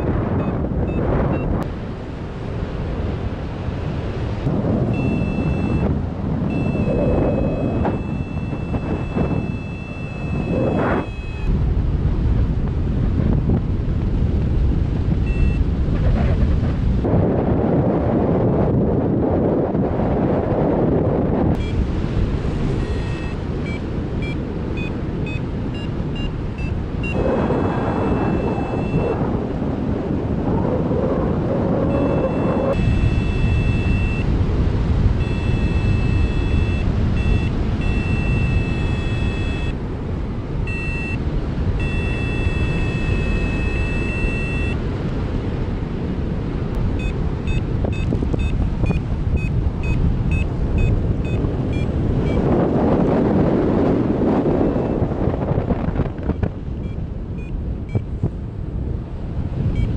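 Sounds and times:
variometer beeping: 0.0s - 1.7s, 4.8s - 11.6s, 15.2s - 15.7s, 21.5s - 21.8s, 22.6s - 29.4s, 31.8s - 39.8s, 40.6s - 44.8s, 46.7s - 52.5s, 54.6s - 55.1s, 56.2s - 58.2s
wind buffeting microphone: 0.0s - 59.9s.

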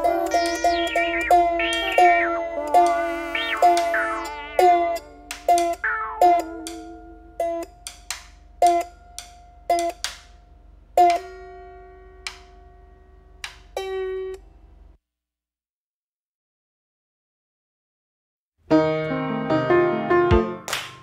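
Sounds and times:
plucked string instrument: 0.0s - 14.5s.

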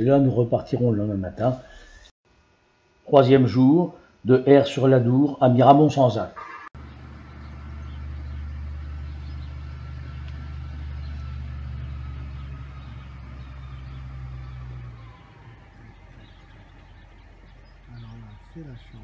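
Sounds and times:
vehicle engine humming: 6.8s - 19.0s.

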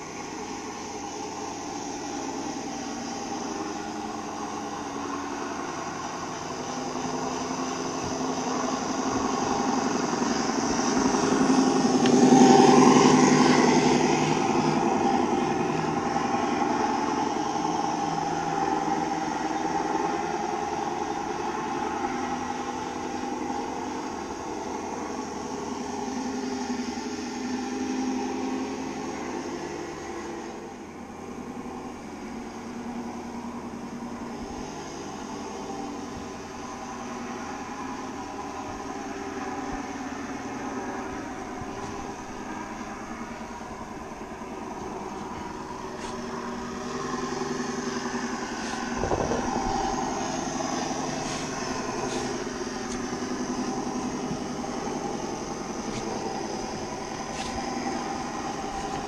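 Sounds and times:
toy truck motor humming: 32.8s - 59.0s.

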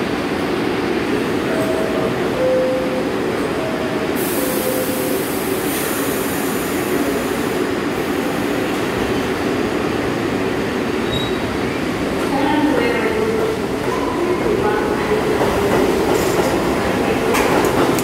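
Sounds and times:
air hiss: 4.2s - 8.6s.

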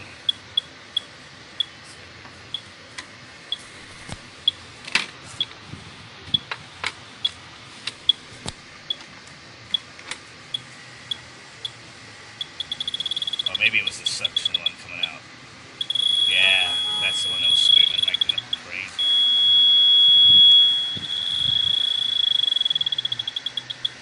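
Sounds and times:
leak detector beeping: 0.2s - 1.8s, 3.5s - 3.7s, 8.0s - 8.2s, 10.5s - 11.8s, 12.4s - 15.2s, 15.8s - 24.0s.

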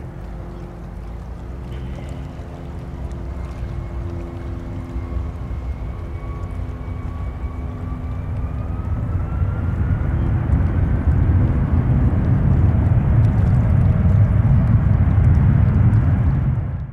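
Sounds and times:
faint rising whine: 0.0s - 16.9s
jet engines deep roar: 0.0s - 16.9s.

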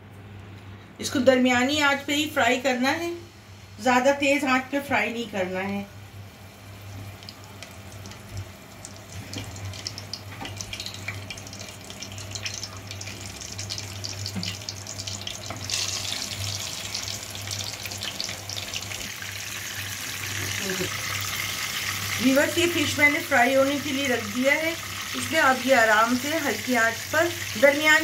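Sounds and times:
low steady hum: 0.0s - 28.0s
fish sizzling in hot oil: 6.5s - 28.0s.

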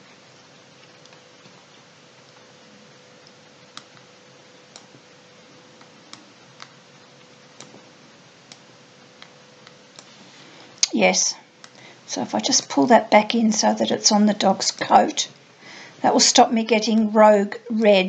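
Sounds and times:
faint hum: 0.0s - 18.0s
low steady hiss: 0.0s - 18.0s
computer mouse clicks: 3.2s - 4.1s, 4.7s - 5.0s, 7.6s - 7.8s.

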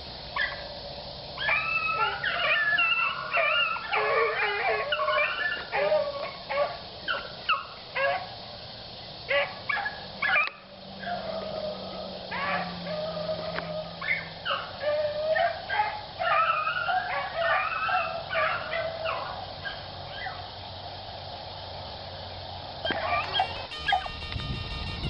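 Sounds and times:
hounds baying: 1.4s - 8.4s, 9.2s - 20.5s, 22.8s - 24.3s.

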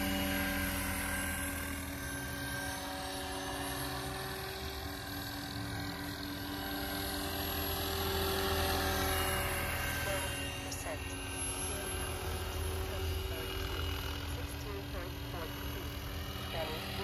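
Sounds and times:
model helicopter motor and rotor: 0.0s - 17.0s.

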